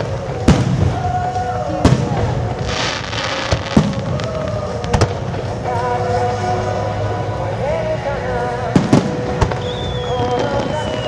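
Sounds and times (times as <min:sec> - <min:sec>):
crackling hiss of sparks: 0:00.0 - 0:05.6
firework bangs: 0:00.0 - 0:05.7, 0:08.7 - 0:11.0
music: 0:00.0 - 0:11.0.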